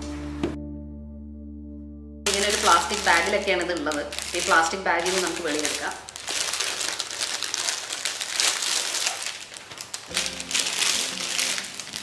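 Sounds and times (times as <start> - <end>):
plastic bag crinkling: 2.3 - 12.0.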